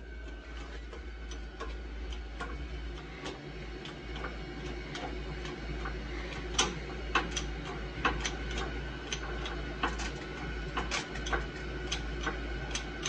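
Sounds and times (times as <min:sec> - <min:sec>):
shop press clicking: 0:02.4 - 0:13.0.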